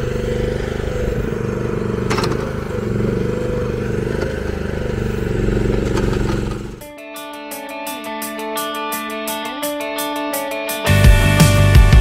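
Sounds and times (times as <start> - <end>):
mini excavator engine running: 0.0 - 6.8.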